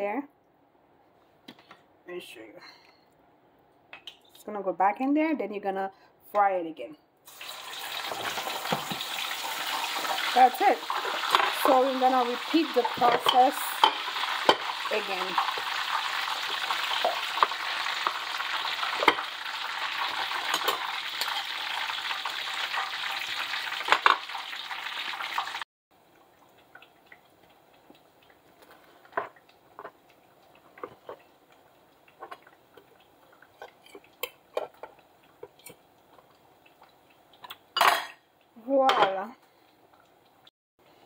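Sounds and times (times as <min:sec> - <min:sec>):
oil sizzling in a frying pan: 0:07.3 - 0:25.7
ceramic plates and knife clinking: 0:37.8 - 0:38.2.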